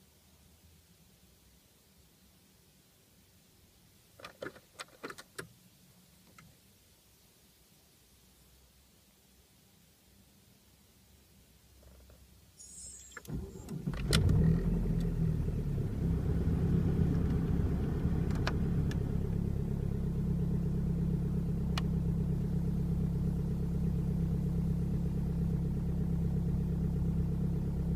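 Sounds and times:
diesel engine cranking and idling: 12.6 - 27.9.

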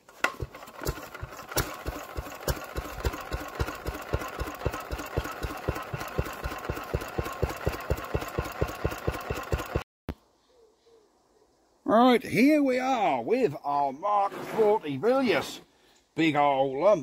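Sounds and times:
engine idling: 0.4 - 9.8.

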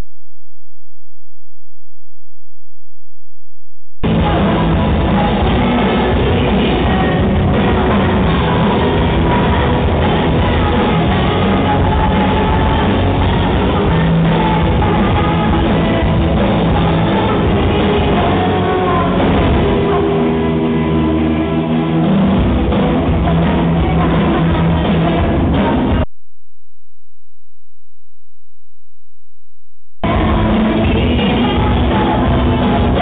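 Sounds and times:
drum kit: 4.0 - 18.4
electric guitars: 4.0 - 26.0
woman singing lead: 4.0 - 26.1, 30.0 - 33.0.

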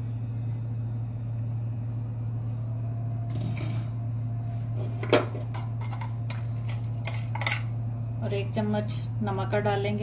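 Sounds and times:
low mechanical hum: 0.0 - 10.0.

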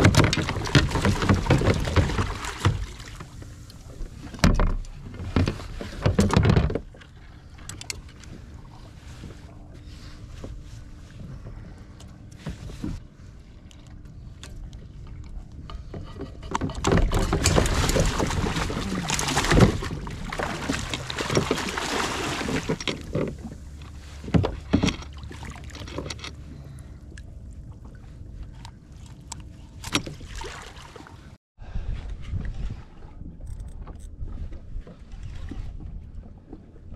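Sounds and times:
fish thrashing and splashing: 0.0 - 3.3, 16.9 - 23.2.

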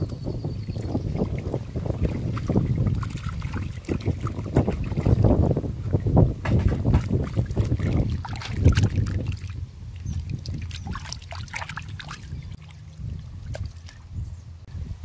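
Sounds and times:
water sloshing in metal basin: 0.6 - 14.1
water dripping: 7.0 - 14.0.

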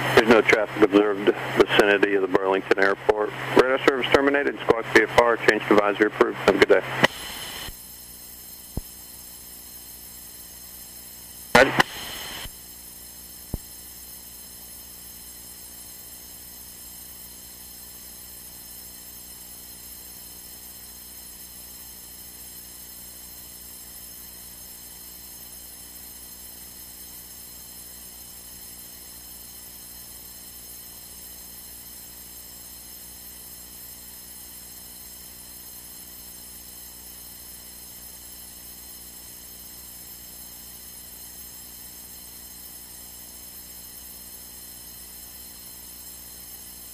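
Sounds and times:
cockpit audio hum with faint hiss: 0.0 - 7.7, 11.5 - 12.5.

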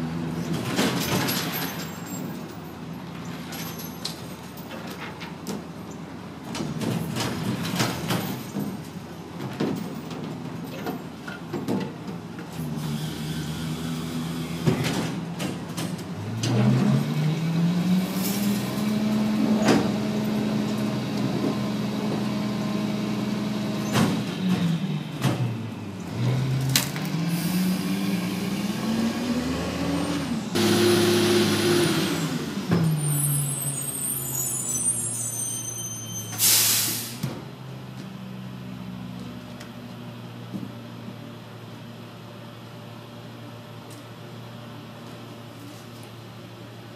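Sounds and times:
garbage truck engine revving: 16.2 - 33.8
loud air hiss: 36.4 - 37.2.

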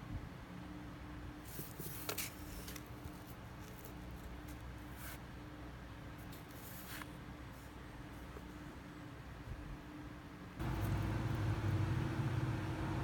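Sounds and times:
faint steady hum: 0.0 - 13.0
soft scrapes and rustles on paper: 1.4 - 5.4, 6.2 - 8.8.

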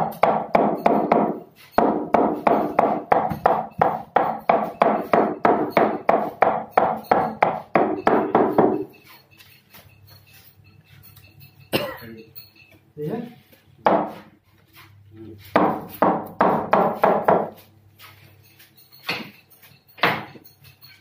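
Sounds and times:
hammer tapping a chisel: 0.0 - 9.9, 15.4 - 17.7.

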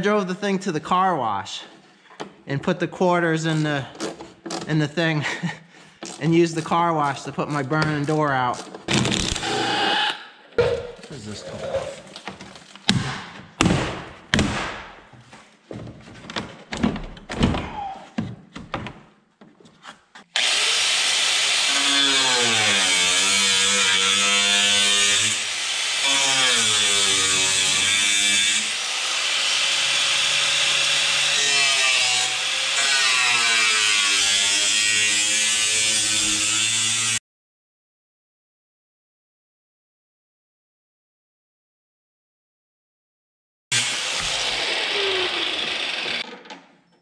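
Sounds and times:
angle grinder cutting metal: 9.3 - 10.2, 20.4 - 37.2, 43.7 - 46.2.

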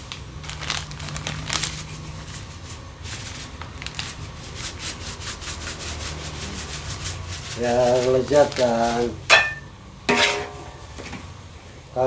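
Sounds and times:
plastic sachet crinkling: 0.0 - 4.8, 7.6 - 9.2.

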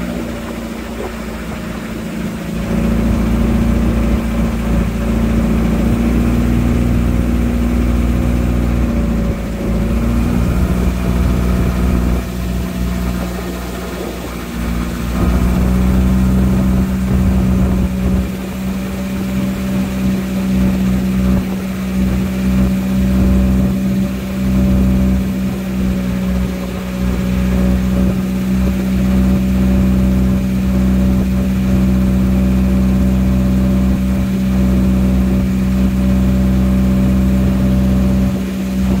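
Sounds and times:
boat engine running: 0.0 - 39.0.

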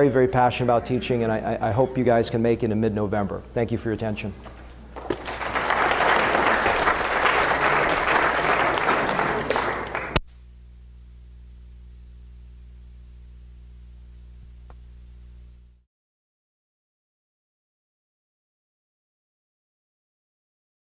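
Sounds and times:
low electrical hum: 0.0 - 15.8
audience applauding: 4.9 - 10.2.

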